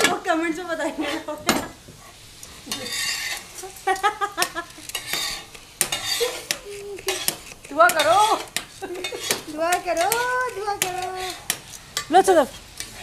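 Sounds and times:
utensil scraping a vessel: 0:02.7 - 0:03.4, 0:04.9 - 0:11.5.

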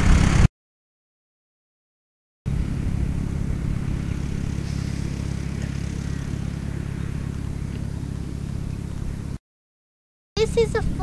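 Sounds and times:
tractor engine running: 0:00.0 - 0:00.5, 0:02.5 - 0:09.4, 0:10.4 - 0:11.0.

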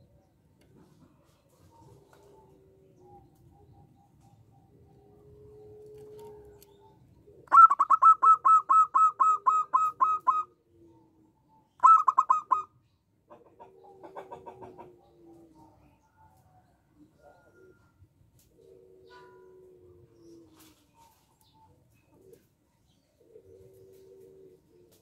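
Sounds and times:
dove cooing: 0:00.0 - 0:12.7, 0:13.3 - 0:25.0
dove staccato call: 0:07.4 - 0:10.5, 0:11.8 - 0:12.7.

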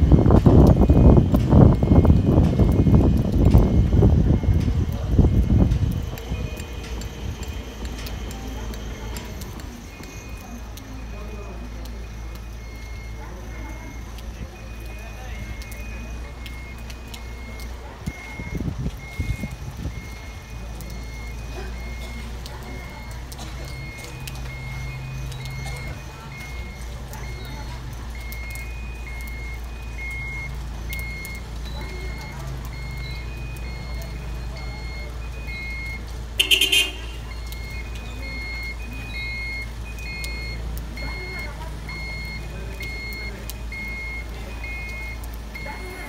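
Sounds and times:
low rumbling: 0:00.0 - 0:11.1
warning beeper beeping: 0:00.0 - 0:46.0
crane engine humming: 0:00.1 - 0:46.0.

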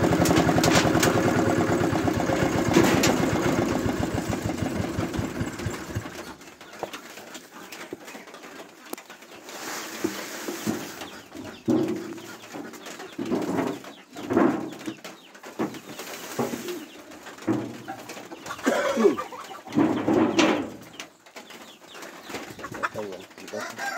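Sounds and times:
doves cooing: 0:00.0 - 0:08.4, 0:16.5 - 0:21.0, 0:22.2 - 0:23.9
hens clucking: 0:00.0 - 0:23.9.

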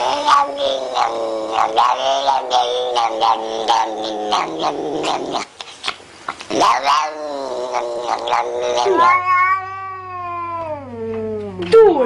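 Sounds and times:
cat meowing: 0:00.0 - 0:04.7, 0:06.6 - 0:11.5
cat yowling: 0:00.0 - 0:05.3, 0:06.6 - 0:11.4
low hum: 0:09.8 - 0:12.0.

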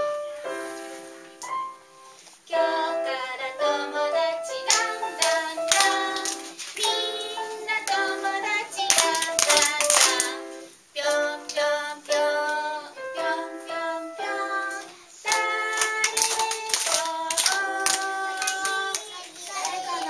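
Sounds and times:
woman singing: 0:02.5 - 0:19.1
hand claps: 0:04.7 - 0:12.6, 0:14.7 - 0:20.0.

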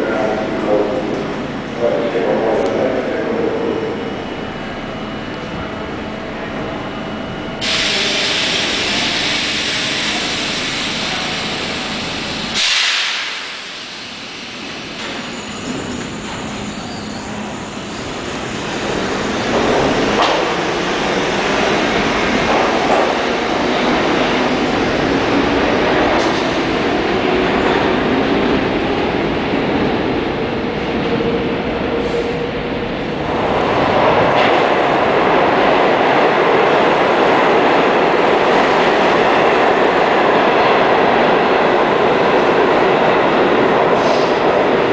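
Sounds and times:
rail and wheel noise: 0:00.0 - 0:44.9
loud air hiss: 0:07.6 - 0:14.8.

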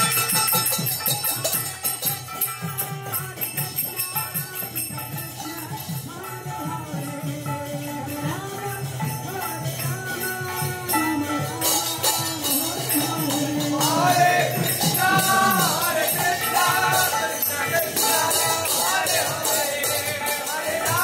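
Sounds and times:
jingling hand cymbals: 0:00.0 - 0:21.0
voices singing: 0:00.0 - 0:21.0.

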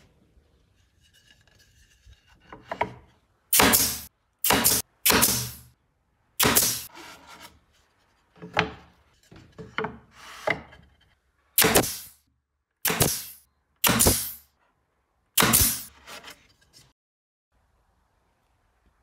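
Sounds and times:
nail gun firing into wood: 0:03.5 - 0:05.7, 0:06.4 - 0:06.9, 0:11.6 - 0:12.1, 0:12.8 - 0:14.4, 0:15.4 - 0:15.9.

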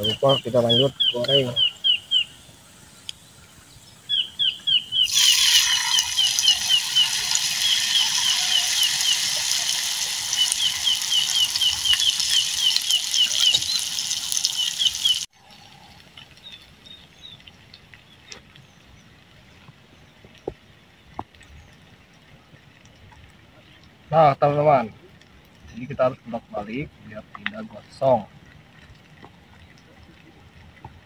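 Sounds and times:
bird chirping: 0:00.0 - 0:15.3
leaves frying in hot oil: 0:05.0 - 0:19.0.

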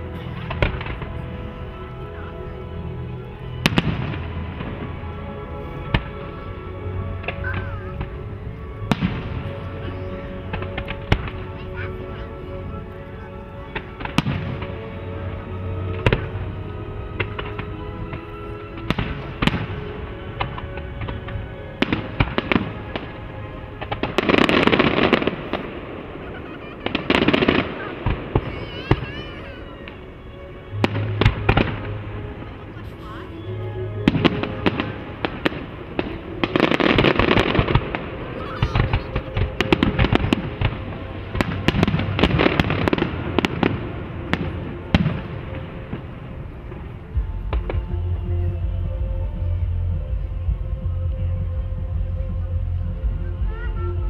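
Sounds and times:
fireworks crackling: 0:00.0 - 0:50.9
fireworks bangs and pops: 0:13.7 - 0:14.8, 0:34.1 - 0:46.1.

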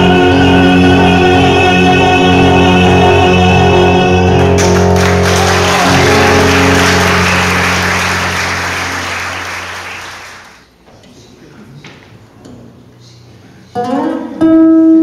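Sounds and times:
live music held chord: 0:00.0 - 0:10.6
audience applause: 0:04.4 - 0:10.6.

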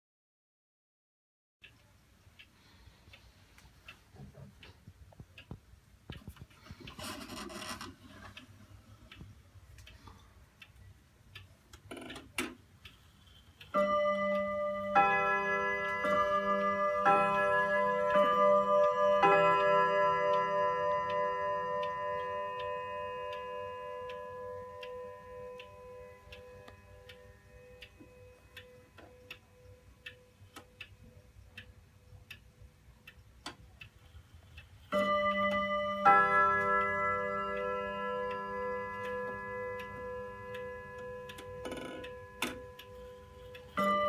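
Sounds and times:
wall clock ticking: 0:01.6 - 0:44.0
clock striking: 0:13.6 - 0:32.4, 0:34.9 - 0:44.0.

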